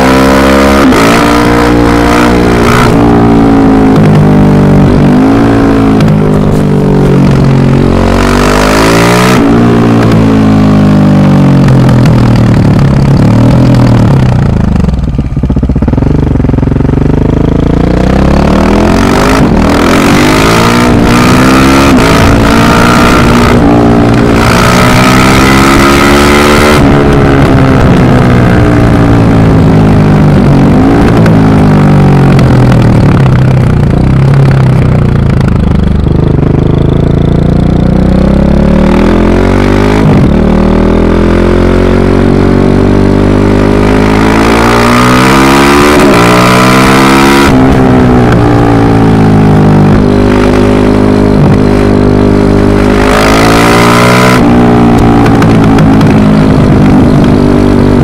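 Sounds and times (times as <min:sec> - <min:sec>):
rally car engines revving: 0:00.0 - 0:04.2.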